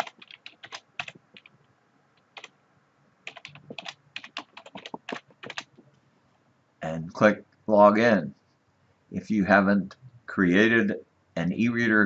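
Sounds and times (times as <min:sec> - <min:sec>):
computer keyboard typing: 0:00.0 - 0:01.5, 0:02.2 - 0:02.5, 0:03.2 - 0:05.8.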